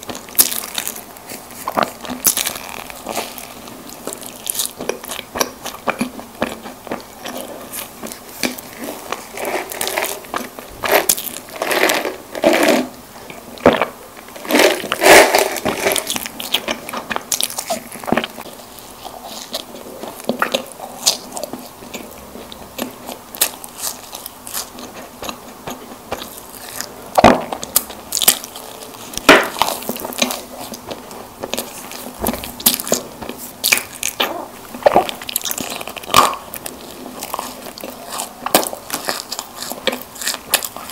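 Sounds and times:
biting and chewing snack cakes: 0:00.0 - 0:40.9.

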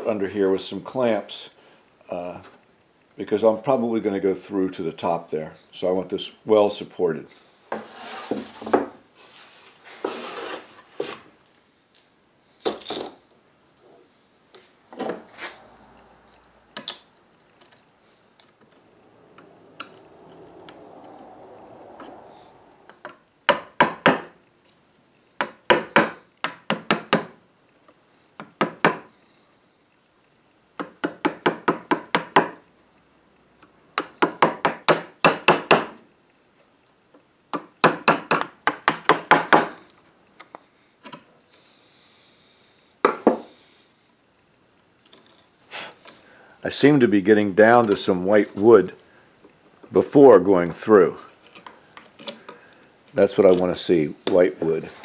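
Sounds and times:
rubbing sound: 0:07.8 - 0:11.3
hammer striking chisel into wood: 0:23.5 - 0:24.3, 0:25.4 - 0:27.4, 0:28.4 - 0:29.1, 0:30.8 - 0:32.6, 0:34.0 - 0:36.0, 0:37.5 - 0:39.7.

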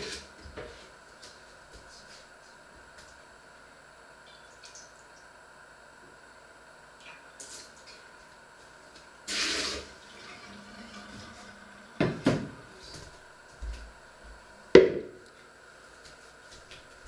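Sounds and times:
running tap water: 0:09.3 - 0:12.2.

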